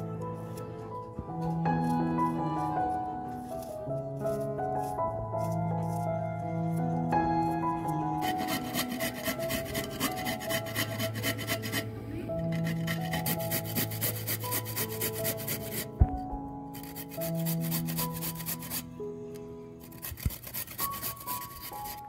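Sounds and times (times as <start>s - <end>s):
soft background music: 0.0s - 22.0s
carrot grating on metal grater: 8.2s - 16.0s, 16.8s - 18.8s, 19.8s - 22.0s.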